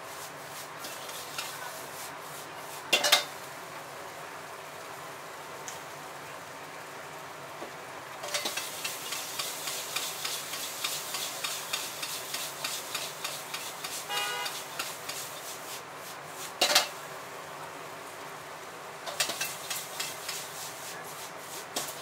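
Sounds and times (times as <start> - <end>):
metal ladle scraping wok: 0.8 - 1.6, 8.2 - 15.6, 16.4 - 16.9, 19.1 - 20.9
metal clang on wok: 3.0 - 3.3
gas flame hiss: 8.2 - 16.9.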